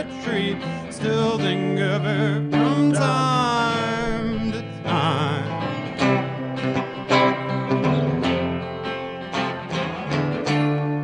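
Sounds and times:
male voices singing: 0:00.0 - 0:05.8
acoustic and electric guitars strumming: 0:00.0 - 0:11.0.

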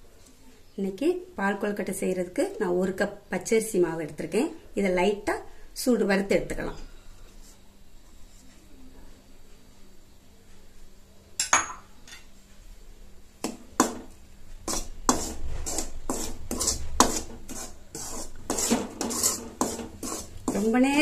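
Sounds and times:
spoon scraping metal pan: 0:13.4 - 0:21.0.

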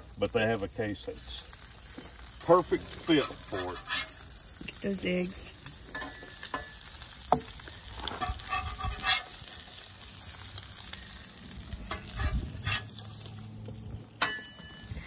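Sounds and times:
eggs sizzling on a griddle: 0:00.0 - 0:15.0
metal spatula scraping griddle: 0:02.8 - 0:04.4, 0:05.9 - 0:13.5, 0:14.2 - 0:15.0.

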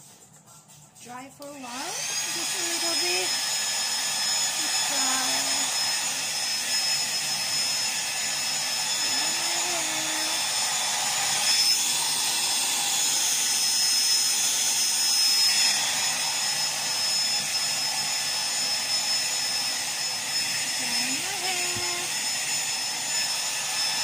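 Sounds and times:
hair dryer blowing: 0:01.1 - 0:24.0.

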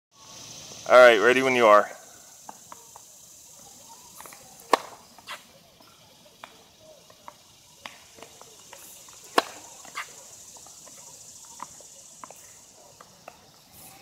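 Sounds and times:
racket hitting ball: 0:04.1 - 0:05.4, 0:07.2 - 0:11.0
tennis ball bouncing on hard court: 0:04.2 - 0:05.4, 0:09.2 - 0:10.2.

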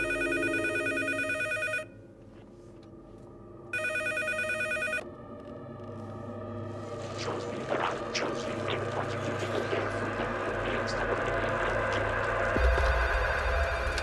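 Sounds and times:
telephone ringing: 0:00.0 - 0:02.0, 0:03.7 - 0:05.0
steady low hum: 0:00.0 - 0:14.0.

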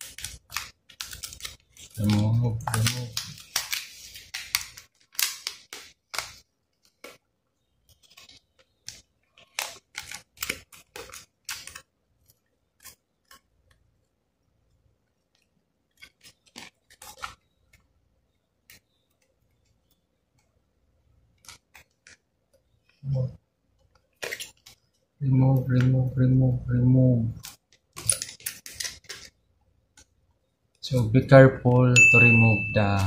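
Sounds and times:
metal and plastic clicks and rattles: 0:27.4 - 0:29.3.

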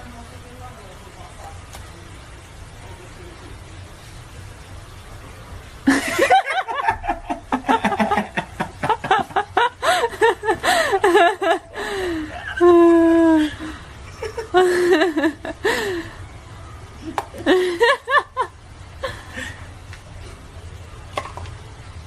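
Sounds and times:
people laughing hard: 0:05.9 - 0:13.4, 0:14.0 - 0:15.9, 0:17.4 - 0:19.4.

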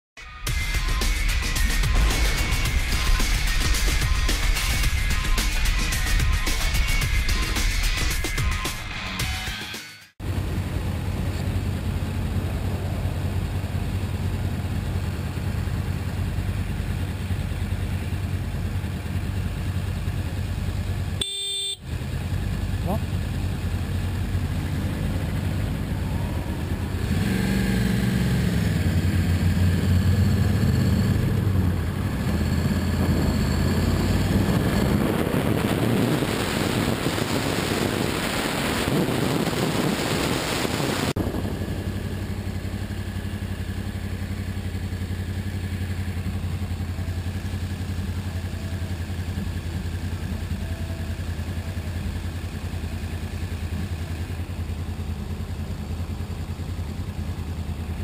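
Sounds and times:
motorcycle engine revving: 0:00.5 - 0:58.0
wind noise: 0:32.6 - 0:41.9.

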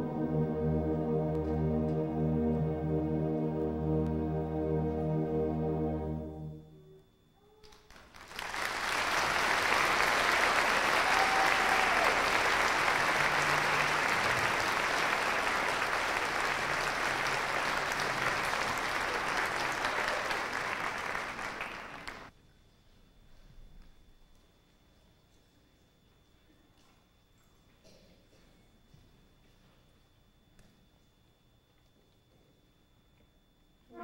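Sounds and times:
audience applause: 0:07.7 - 0:22.3.

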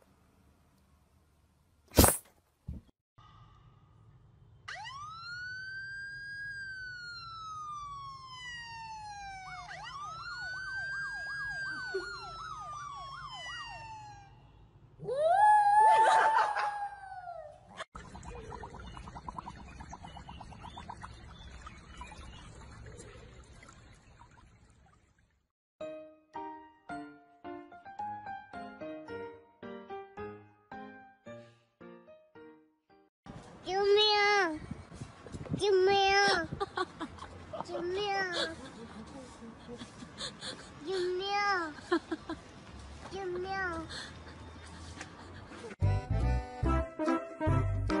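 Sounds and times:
police siren from phone speaker: 0:04.7 - 0:14.6.

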